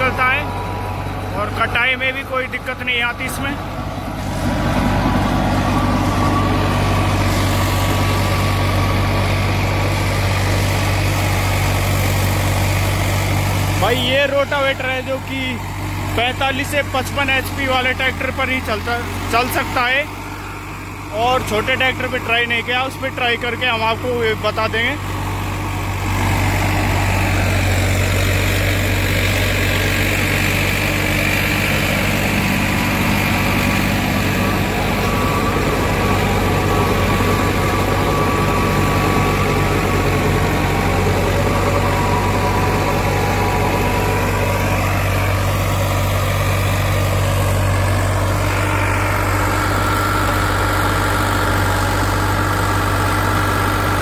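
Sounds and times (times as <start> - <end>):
tractor diesel engine under load: 0.0 - 54.0
rotavator blades churning soil: 3.2 - 17.6, 24.3 - 54.0.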